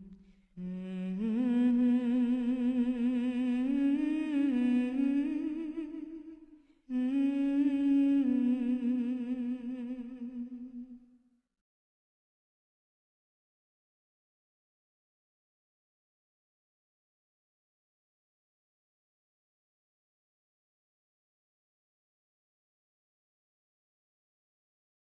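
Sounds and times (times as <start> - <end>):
person humming a slow tune: 0.0 - 11.0.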